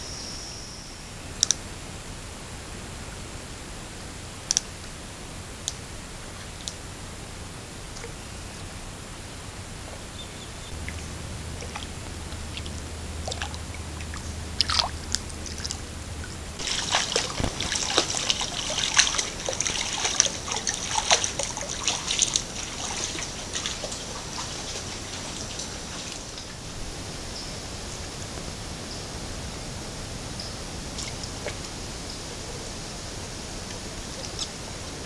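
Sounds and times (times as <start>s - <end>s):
deer splashing through water: 10.7s - 27.3s.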